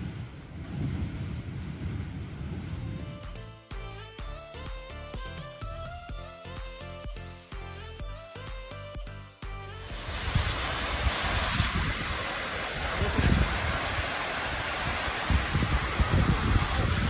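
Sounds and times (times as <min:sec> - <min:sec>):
wind buffeting microphone: 0:00.0 - 0:03.3, 0:09.9 - 0:17.0
steady rushing noise: 0:00.0 - 0:03.5, 0:09.8 - 0:17.0
music: 0:02.7 - 0:10.9.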